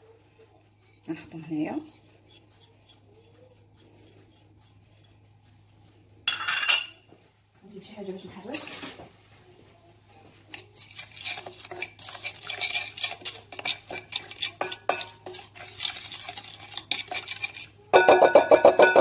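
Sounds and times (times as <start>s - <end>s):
spoon clinking and scraping glass: 6.3s - 7.0s, 10.5s - 19.0s.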